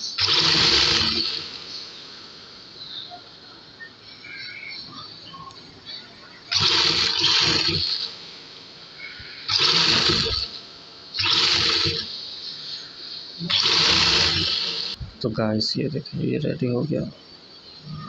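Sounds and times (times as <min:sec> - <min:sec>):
sewing machine stitching: 0:00.0 - 0:01.5, 0:06.5 - 0:08.0, 0:11.2 - 0:12.0, 0:13.5 - 0:15.0.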